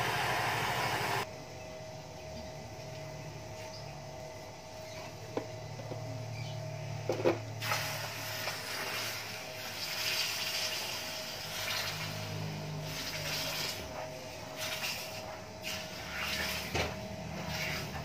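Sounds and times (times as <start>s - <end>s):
arc welder hissing: 0.0s - 1.3s, 7.6s - 13.8s
welding set humming: 0.0s - 1.3s, 5.6s - 18.0s.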